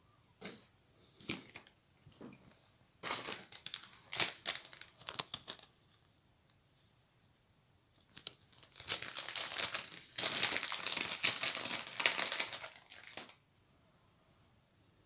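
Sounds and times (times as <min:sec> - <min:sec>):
plastic packet crinkling: 0:03.0 - 0:05.8, 0:08.0 - 0:13.4.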